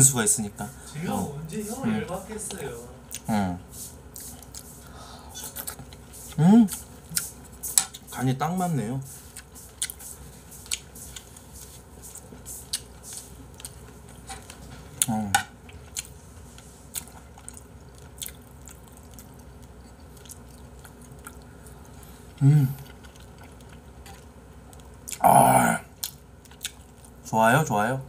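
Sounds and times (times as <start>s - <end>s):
person chewing: 3.1s - 3.3s, 4.1s - 8.1s, 9.3s - 27.2s
murmured voice: 22.4s - 22.8s, 25.2s - 25.9s.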